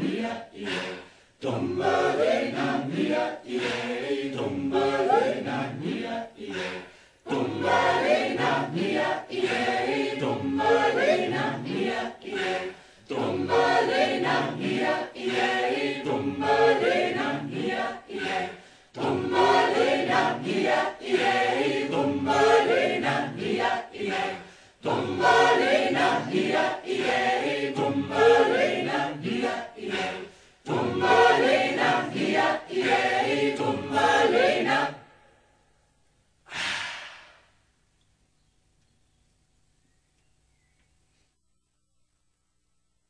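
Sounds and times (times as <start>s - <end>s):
a cappella choir singing: 0.0s - 35.6s, 36.5s - 37.5s
short breathy sound: 36.4s - 37.8s.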